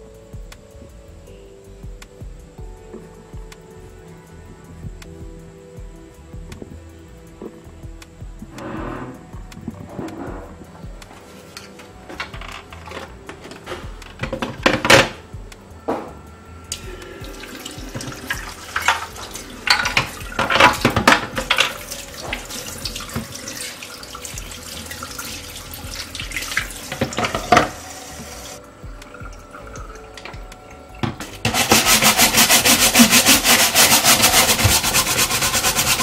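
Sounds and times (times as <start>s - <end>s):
tap water running into sink: 17.2s - 28.6s.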